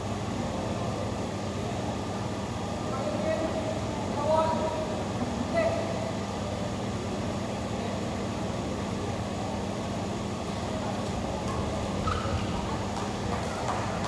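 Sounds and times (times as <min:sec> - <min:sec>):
background hum and hiss: 0:00.0 - 0:14.0.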